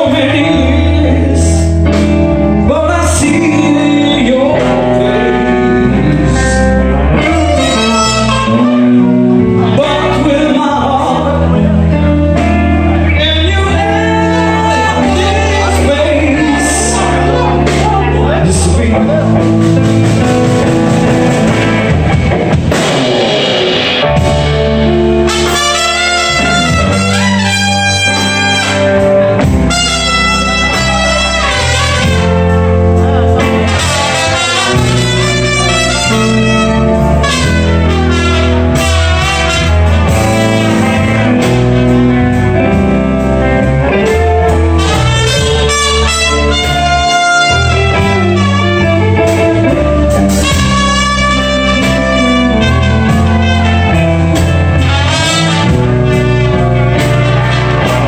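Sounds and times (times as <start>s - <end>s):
blues band playing: 0.0s - 58.0s
trumpet solo melody: 6.8s - 10.2s, 11.1s - 17.8s, 23.9s - 58.0s.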